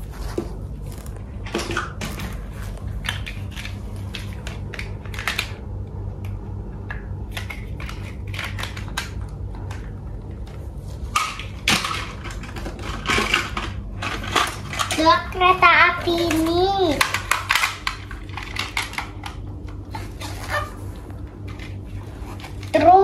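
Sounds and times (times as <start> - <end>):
steady low hum: 0.0 - 23.0
plastic toy vehicles clacking: 11.2 - 19.4.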